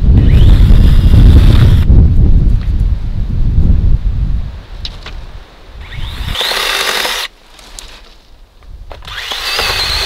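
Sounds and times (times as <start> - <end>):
wind buffeting microphone: 0.0 - 6.5
brush rustling: 4.9 - 9.3.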